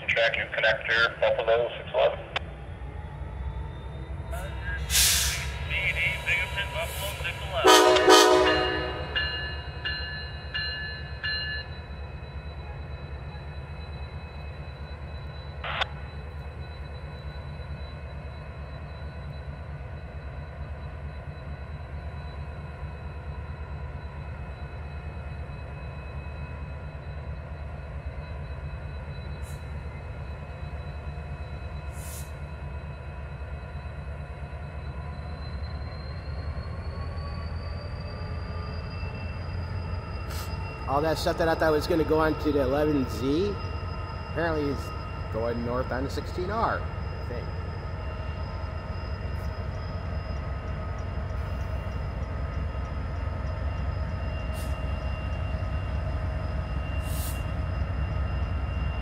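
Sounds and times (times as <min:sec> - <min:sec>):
diesel locomotive rumbling: 0:00.0 - 0:59.0
locomotive bell ringing: 0:06.6 - 0:31.9, 0:34.3 - 0:59.0.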